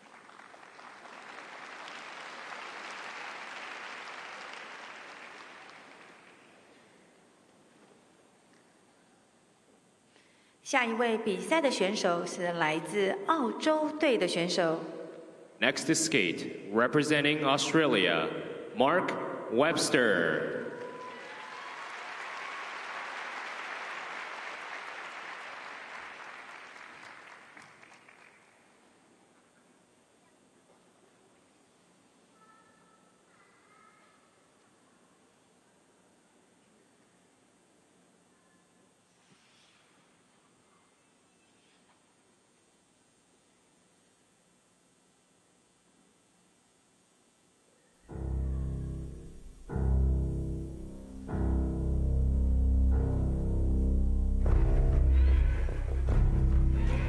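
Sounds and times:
audience applauding: 0:00.0 - 0:07.0, 0:20.7 - 0:28.9, 0:54.6 - 0:57.0.

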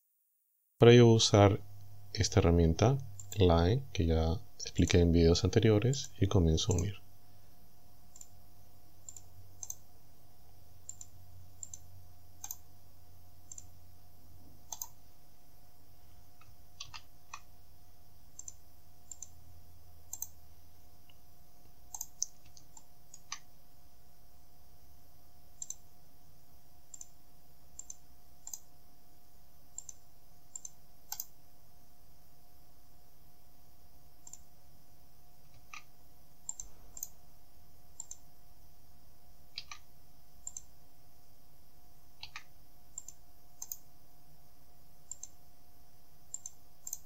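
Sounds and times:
faint electrical hum: 0:00.4 - 0:47.0
computer mouse clicking: 0:03.0 - 0:03.4, 0:08.1 - 0:08.3, 0:09.0 - 0:09.8, 0:10.8 - 0:11.8, 0:12.4 - 0:12.6, 0:13.5 - 0:13.7, 0:14.7 - 0:15.0, 0:16.4 - 0:17.5, 0:18.4 - 0:19.4, 0:20.1 - 0:20.4, 0:21.9 - 0:23.5, 0:25.6 - 0:25.8, 0:26.9 - 0:27.1, 0:27.8 - 0:28.7, 0:29.7 - 0:31.3, 0:34.2 - 0:34.5, 0:35.5 - 0:37.2, 0:38.0 - 0:38.2, 0:39.5 - 0:40.7, 0:42.2 - 0:43.8, 0:45.1 - 0:45.4, 0:46.3 - 0:47.0.

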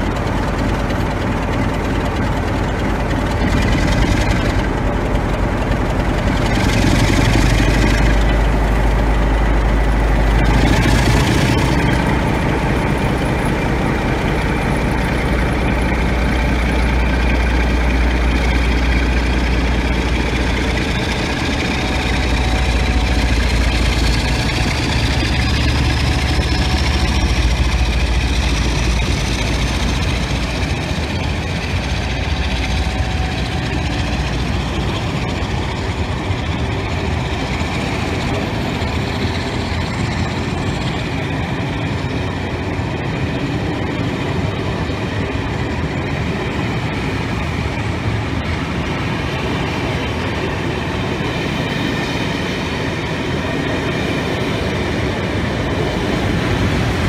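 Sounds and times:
diesel locomotive engine throbbing: 0:00.0 - 0:57.0
thin rising whine: 0:03.0 - 0:43.6.

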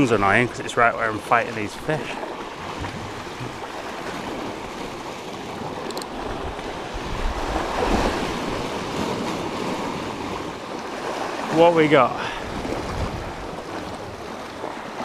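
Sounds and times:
waves breaking on rocks: 0:00.0 - 0:15.0
wind buffeting microphone: 0:02.5 - 0:11.2, 0:12.3 - 0:14.8.

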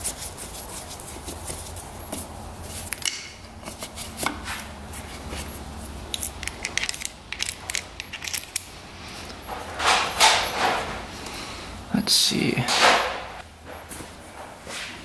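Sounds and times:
metal hose fittings clicking: 0:06.1 - 0:09.4.

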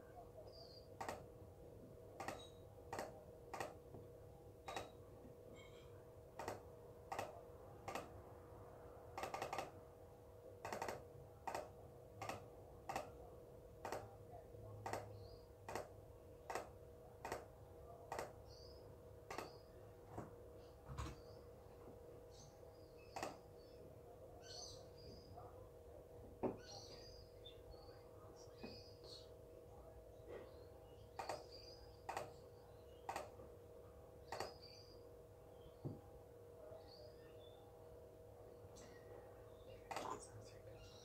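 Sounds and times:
faint steady hum: 0:00.0 - 0:41.0
computer mouse clicking: 0:02.2 - 0:03.8, 0:04.7 - 0:04.9, 0:06.4 - 0:08.1, 0:09.2 - 0:09.7, 0:10.6 - 0:13.1, 0:13.8 - 0:14.1, 0:14.9 - 0:15.1, 0:15.7 - 0:15.9, 0:16.5 - 0:17.5, 0:19.3 - 0:19.5, 0:33.1 - 0:33.4, 0:34.3 - 0:34.6.

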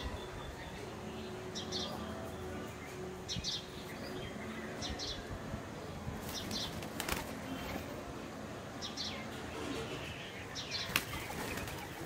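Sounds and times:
small birds chirping: 0:00.0 - 0:12.0
doves' wings flapping: 0:06.2 - 0:07.9, 0:10.8 - 0:12.0
sharp wing claps: 0:06.4 - 0:07.4.

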